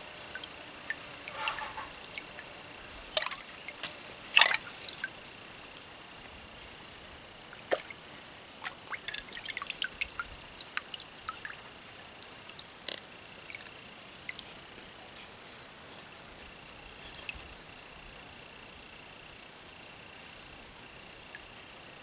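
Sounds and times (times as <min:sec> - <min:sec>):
water splashing and dripping: 0:00.0 - 0:15.0.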